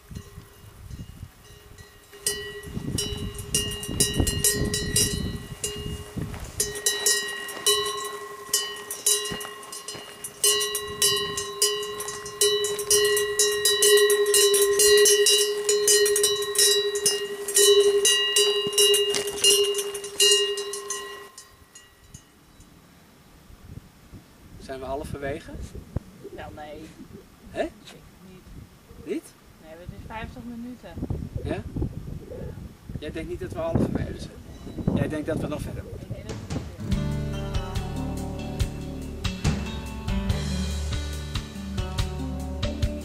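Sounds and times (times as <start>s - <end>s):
cowbell clanking: 0.1s - 22.7s.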